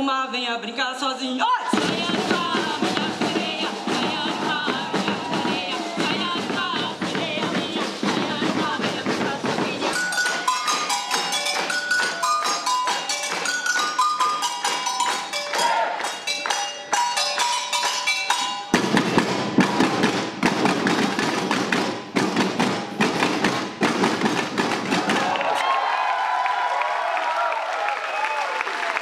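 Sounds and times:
samba percussion band: 0:01.7 - 0:25.4
stepping melody line: 0:01.8 - 0:23.8.

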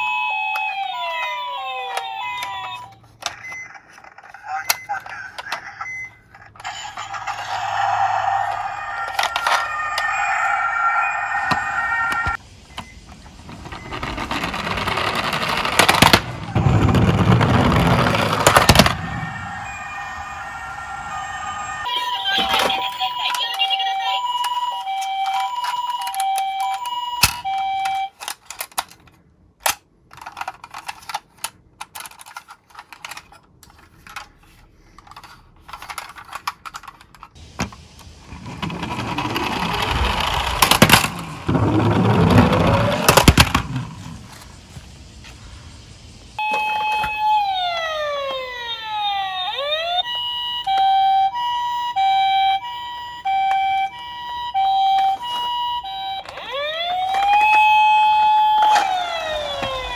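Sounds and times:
toy ambulance two-tone siren: 0:00.0 - 0:13.0, 0:13.7 - 0:16.6, 0:17.7 - 0:29.0, 0:34.0 - 0:37.3, 0:38.3 - 0:43.8, 0:46.4 - 0:59.9
plastic toys clattering: 0:01.6 - 0:10.1, 0:22.4 - 0:44.5, 0:53.3 - 0:59.9
falling electronic sweeps: 0:06.6 - 0:12.4, 0:18.1 - 0:22.5, 0:38.2 - 0:50.0
loud whirring and rattling: 0:37.4 - 0:44.6.

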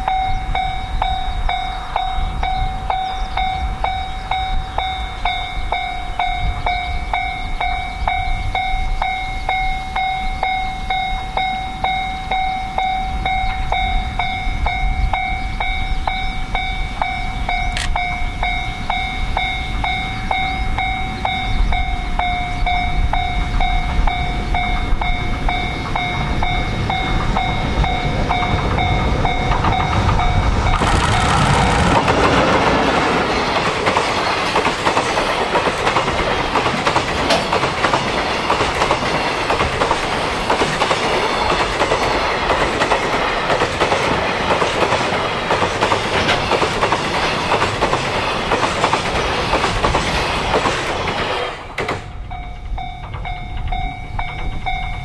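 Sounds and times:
level crossing warning bell: 0:00.0 - 0:49.0, 0:52.0 - 0:55.0
freight train passing: 0:00.0 - 0:55.0
wagons running over rails: 0:22.2 - 0:55.0.

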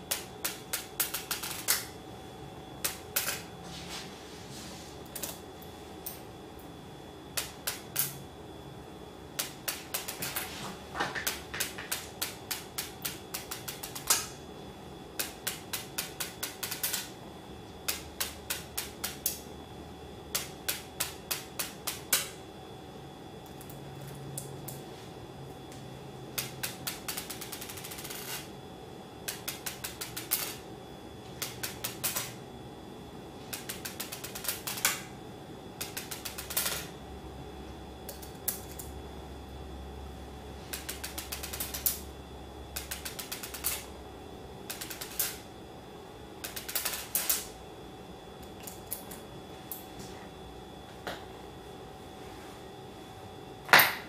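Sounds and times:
magnet balls clicking on stone: 0:40.8 - 0:42.0, 0:42.8 - 0:43.9, 0:44.7 - 0:45.4, 0:46.4 - 0:47.5.

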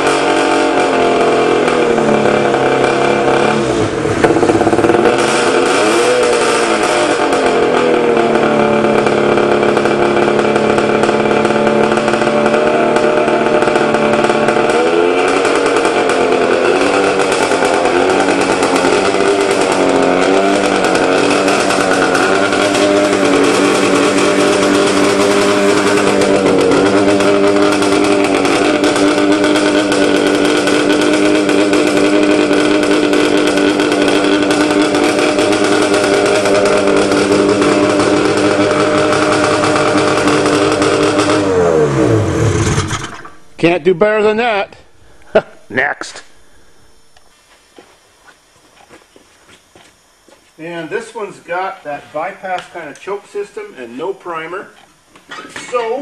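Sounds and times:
snowmobile engine idling: 0:00.0 - 0:47.3.

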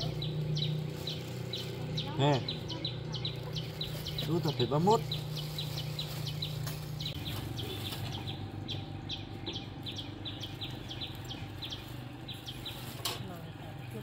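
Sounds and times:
plastic bags rustling: 0:00.0 - 0:02.0, 0:03.0 - 0:08.3, 0:10.6 - 0:14.0
small bird chirping: 0:00.0 - 0:14.0.

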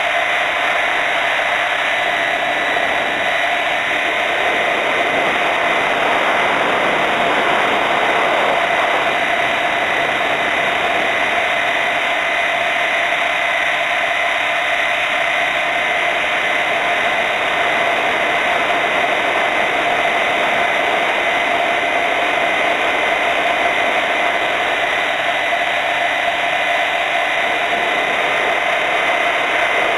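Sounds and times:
helicopter motor whine: 0:00.0 - 0:29.9.

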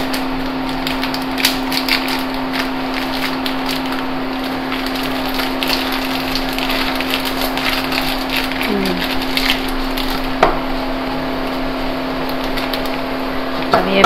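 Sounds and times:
plastic wrapper crinkling: 0:00.0 - 0:14.0.

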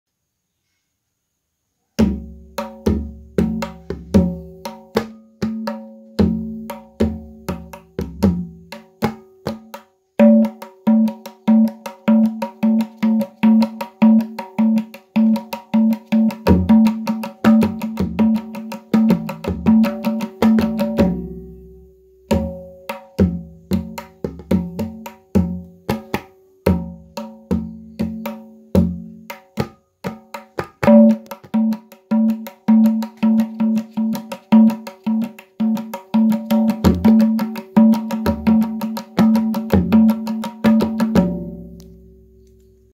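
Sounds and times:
tabla ringing strokes: 0:02.2 - 0:42.9
tabla deep bass strokes: 0:16.3 - 0:25.6, 0:36.5 - 0:42.9.

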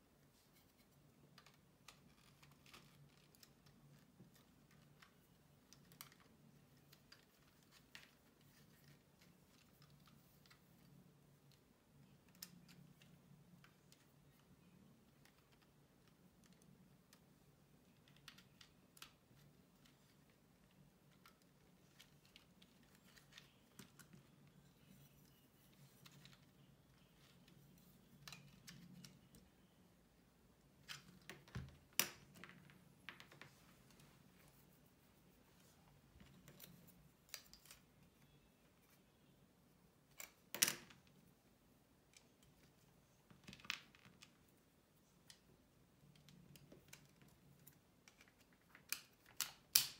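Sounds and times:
faint low hum: 0:00.0 - 0:49.4
plastic pieces snapping: 0:48.1 - 0:49.9.

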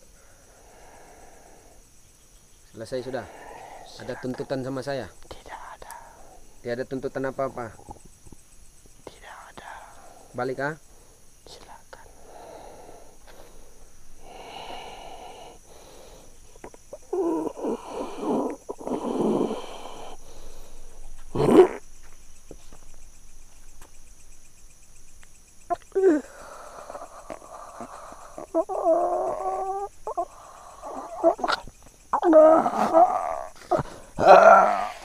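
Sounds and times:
man moaning: 0:32.2 - 0:35.0.

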